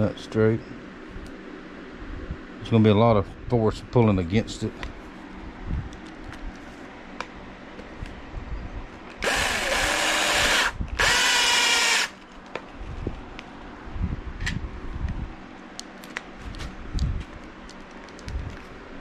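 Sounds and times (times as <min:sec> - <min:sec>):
cordless drill driving screws: 0:09.2 - 0:12.2.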